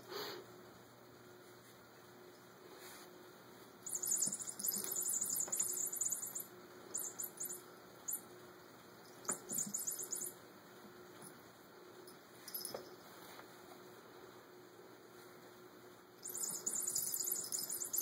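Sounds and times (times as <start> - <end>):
toy jingling: 3.9 - 8.2, 9.0 - 10.4, 12.5 - 12.9, 16.2 - 18.0.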